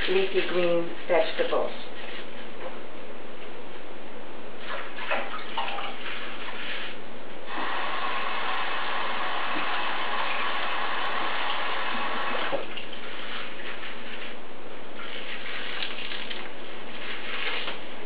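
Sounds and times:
faucet running water: 0:04.6 - 0:14.4, 0:15.0 - 0:18.0.

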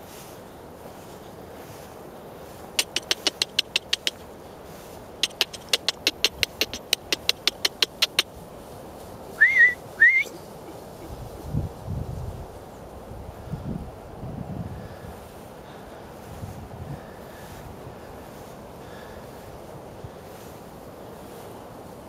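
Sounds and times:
tongue clicks: 0:02.8 - 0:04.2, 0:05.2 - 0:08.3
short rising whistles: 0:09.4 - 0:10.4.

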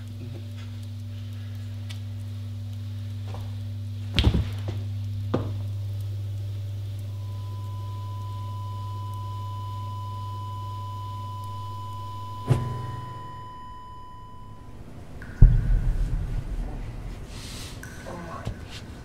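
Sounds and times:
low hum: 0:00.0 - 0:19.0
body thudding on floor: 0:04.1 - 0:04.8
high-pitched tone: 0:11.4 - 0:16.7.

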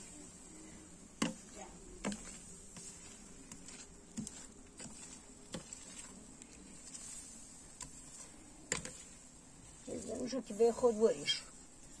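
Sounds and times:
faint steady hiss: 0:00.0 - 0:12.0
metal spatula scraping a griddle: 0:01.2 - 0:10.4.

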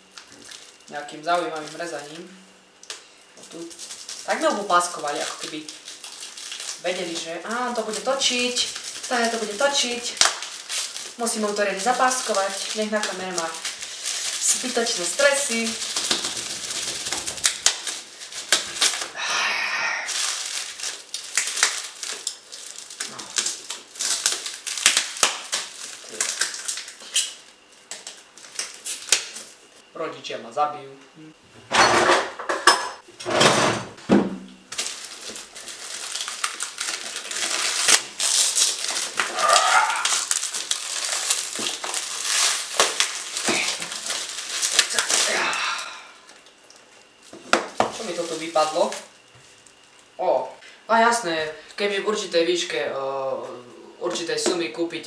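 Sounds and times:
plastic wrapping tearing and crinkling: 0:00.0 - 0:19.2, 0:20.0 - 0:29.6, 0:34.7 - 0:50.2
tape ripping: 0:02.8 - 0:19.2, 0:20.1 - 0:29.5, 0:34.7 - 0:45.6
knife cutting packing tape: 0:03.8 - 0:19.1, 0:20.3 - 0:29.5, 0:34.7 - 0:45.6.

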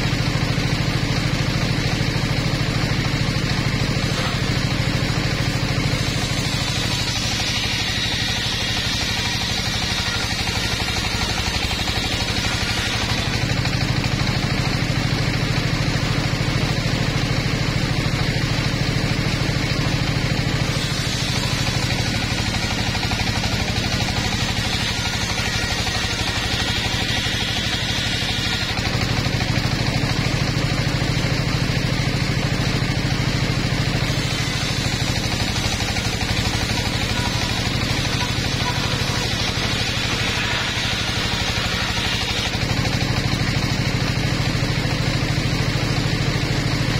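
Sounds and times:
saw bench engine running: 0:00.0 - 0:46.9
saw blade ripping logs: 0:03.8 - 0:13.8, 0:20.6 - 0:29.8, 0:33.9 - 0:43.6.

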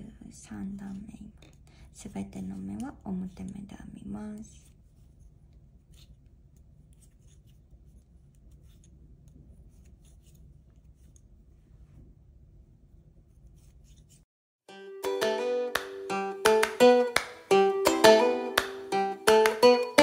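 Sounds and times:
low room hum: 0:00.0 - 0:14.2
plucked guitar music: 0:14.7 - 0:20.0.

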